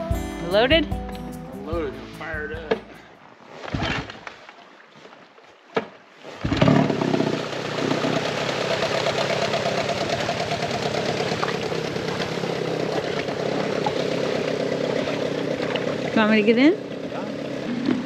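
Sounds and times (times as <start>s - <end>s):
outboard motor starting up: 3.6s - 4.4s, 6.2s - 18.0s.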